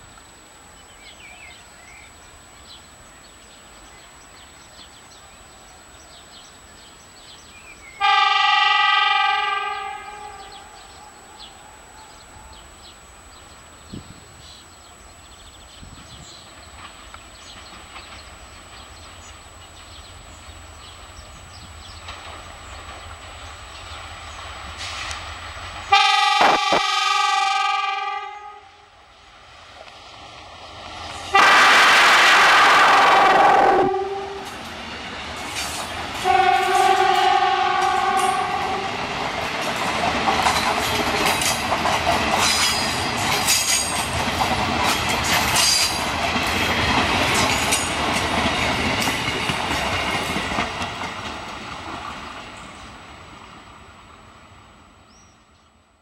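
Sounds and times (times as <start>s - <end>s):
train rumble: 0.0s - 56.0s
locomotive horn blasts: 8.0s - 10.7s, 25.9s - 28.9s, 31.3s - 34.6s, 36.2s - 39.0s
wheels clattering over rail joints: 16.6s - 20.5s, 34.4s - 36.9s, 38.0s - 52.6s.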